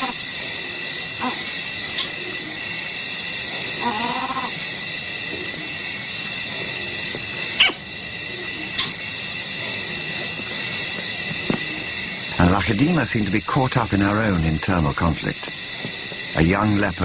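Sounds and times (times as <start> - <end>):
leopard low call: 0.0 - 2.6, 3.8 - 4.6
insects chorus: 0.0 - 17.0.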